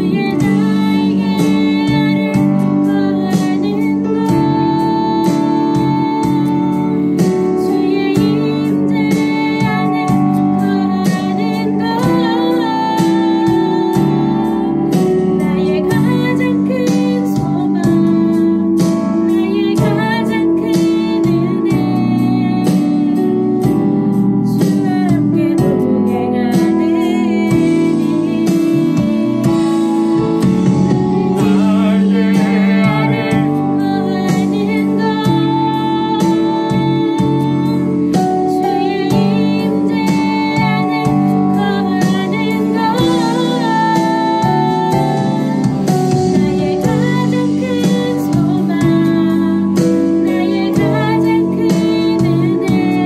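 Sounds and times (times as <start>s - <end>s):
instrumental accompaniment: 0.0s - 53.0s
person singing with vibrato: 31.2s - 45.8s.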